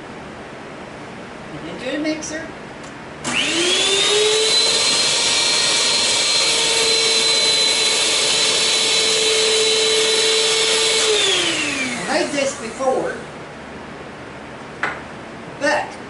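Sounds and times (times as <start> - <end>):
stand mixer motor whining: 3.2 - 12.8.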